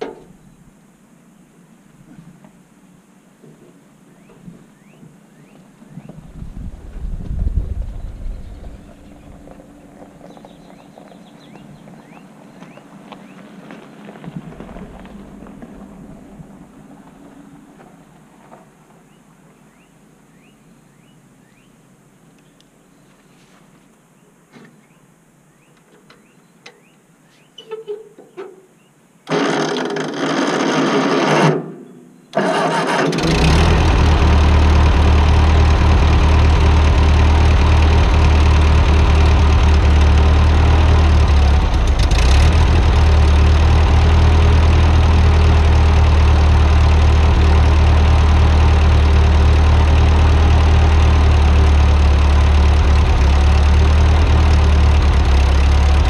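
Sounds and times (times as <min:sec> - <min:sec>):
tractor engine running: 0:06.2 - 0:18.5, 0:29.3 - 0:31.5, 0:32.4 - 0:56.0
tractor engine starter cranking: 0:29.3 - 0:31.6, 0:32.3 - 0:49.0.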